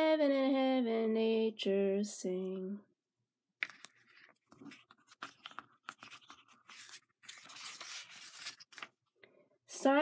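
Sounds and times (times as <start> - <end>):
paper page turning: 3.6 - 9.1.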